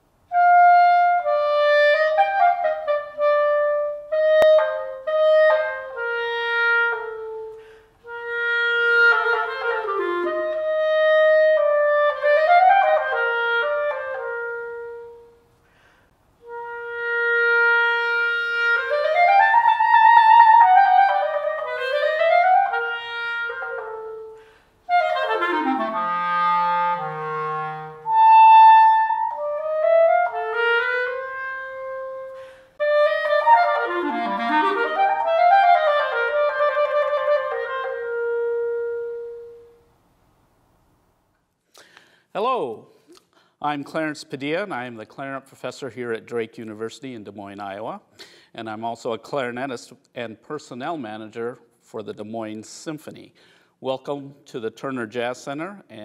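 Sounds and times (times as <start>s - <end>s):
solo clarinet playing: 0.3s - 40.0s.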